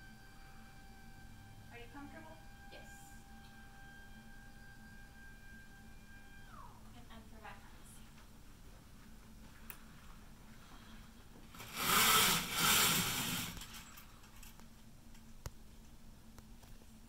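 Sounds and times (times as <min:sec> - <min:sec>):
window blinds rattling: 0:11.5 - 0:14.6.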